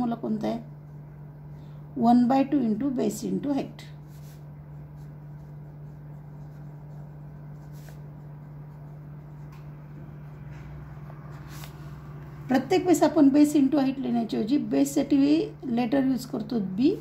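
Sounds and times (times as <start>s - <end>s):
low hum: 0.0s - 17.0s
pen scratching on paper: 4.0s - 11.7s.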